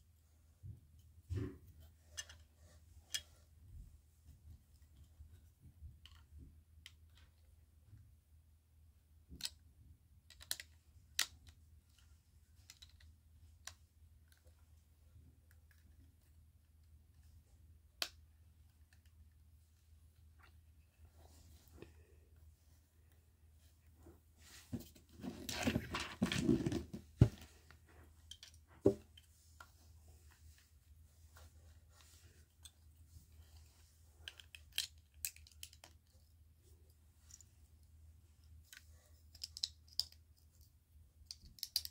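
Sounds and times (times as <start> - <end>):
plastic bricks clicking together: 10.3 - 11.6, 34.2 - 36.0, 38.7 - 40.2, 41.2 - 41.9.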